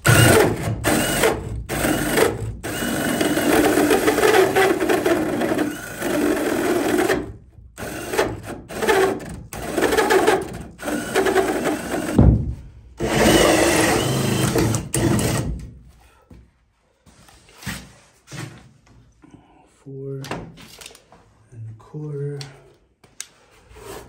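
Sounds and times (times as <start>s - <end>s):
drill with hole saw cutting wood: 0.0s - 12.2s, 13.0s - 15.6s.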